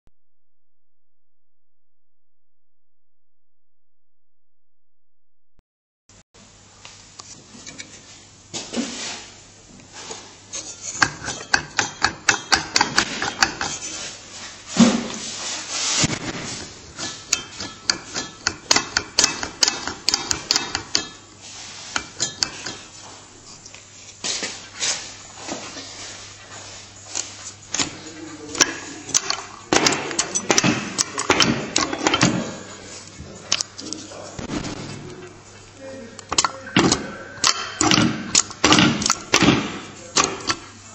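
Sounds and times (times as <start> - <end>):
sharp metallic knocks and clanks: 11.0 - 13.8, 17.0 - 21.2, 28.6 - 32.6, 36.3 - 40.6.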